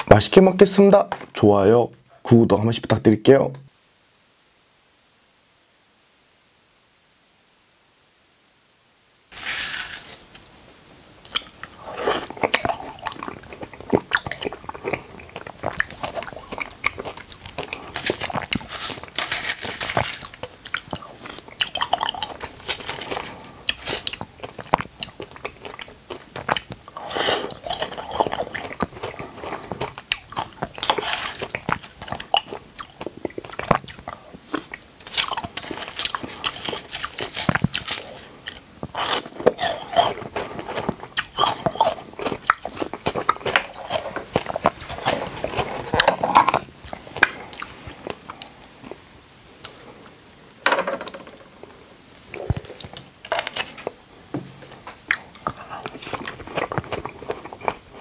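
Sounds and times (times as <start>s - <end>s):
wet mouth sounds: 11.2s - 48.8s
chewing and biting fruit: 11.3s - 48.8s, 55.0s - 58.0s.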